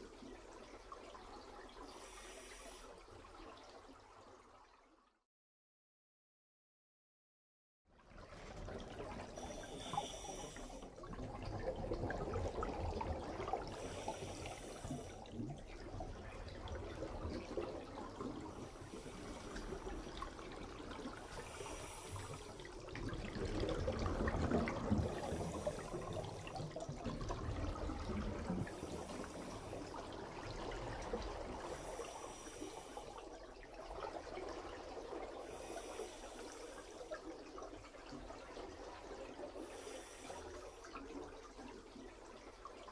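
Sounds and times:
regulator inhalation hiss: 0:01.9 - 0:03.0, 0:09.4 - 0:10.8, 0:13.8 - 0:15.2, 0:21.3 - 0:22.7, 0:25.0 - 0:26.6, 0:28.7 - 0:30.0, 0:31.6 - 0:33.2, 0:35.5 - 0:37.1, 0:39.6 - 0:40.8.

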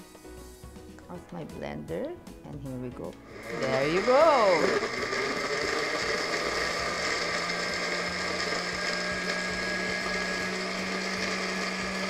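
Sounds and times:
blender motor whirring: 0:03.1 - 0:12.0.

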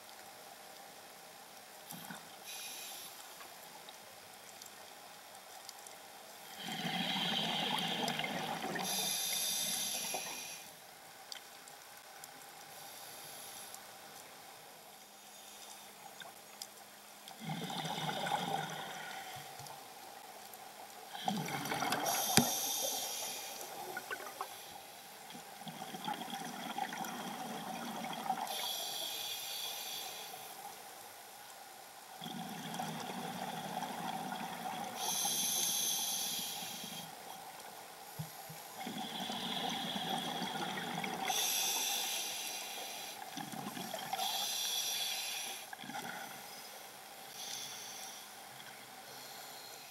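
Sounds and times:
diver breathing through regulator: 0:21.2 - 0:24.7, 0:35.0 - 0:37.1, 0:38.9 - 0:43.2.

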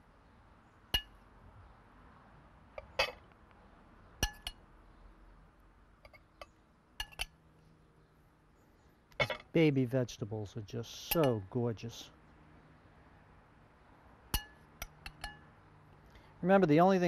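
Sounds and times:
metal spoon clinking on ceramic: 0:04.2 - 0:04.6, 0:07.0 - 0:07.3, 0:11.1 - 0:11.4, 0:14.4 - 0:15.4.

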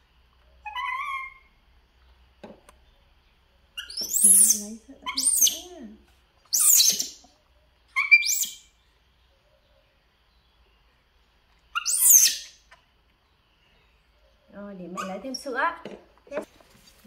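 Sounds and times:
monkeys chirping: 0:00.6 - 0:01.5, 0:03.8 - 0:05.7, 0:06.5 - 0:07.3, 0:07.9 - 0:08.7, 0:11.7 - 0:12.6, 0:14.9 - 0:15.4.

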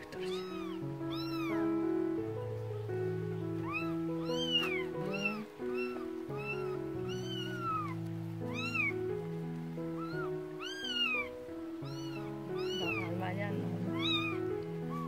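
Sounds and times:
kitten meowing: 0:00.0 - 0:02.0, 0:03.6 - 0:15.0
soft background music: 0:00.0 - 0:15.0.

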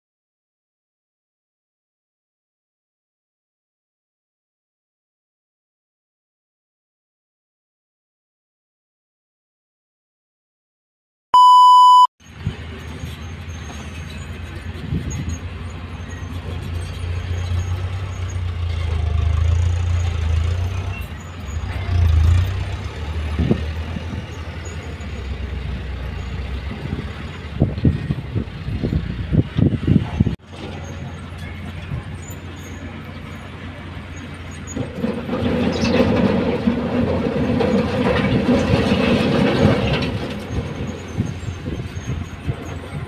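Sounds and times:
test-tone beep: 0:11.4 - 0:12.1
heavy diesel engines rumbling: 0:12.2 - 0:43.0.

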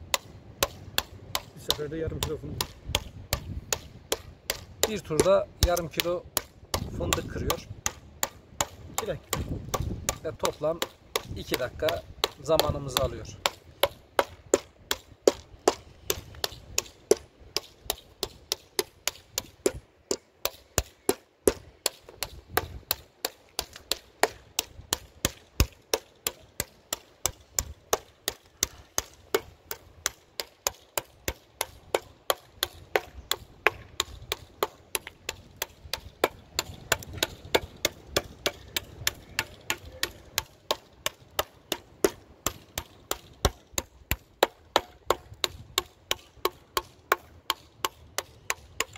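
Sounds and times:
hammer cracking nuts: 0:00.1 - 0:48.9.

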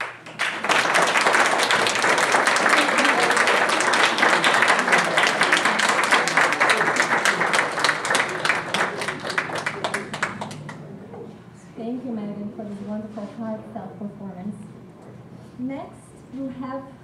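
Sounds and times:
audience applauding: 0:00.0 - 0:10.9.

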